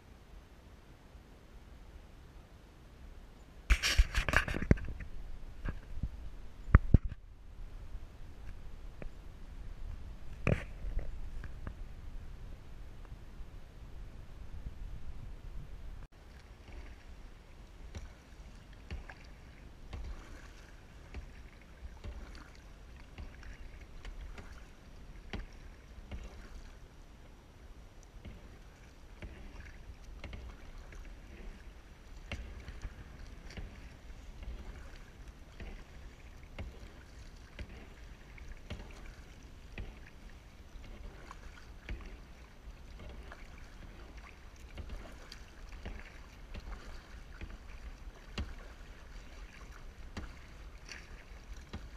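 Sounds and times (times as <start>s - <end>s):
paddle splashing into water: 3.7s - 6.1s, 16.1s - 51.9s
steady low rumble: 4.9s - 16.1s
water dripping: 32.1s - 51.9s.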